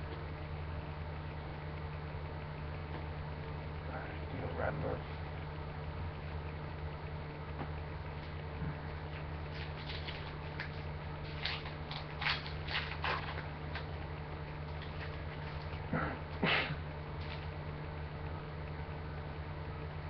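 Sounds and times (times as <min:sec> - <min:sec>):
low electrical hum: 0:00.0 - 0:20.0
cards ticking and rustling: 0:09.1 - 0:15.8.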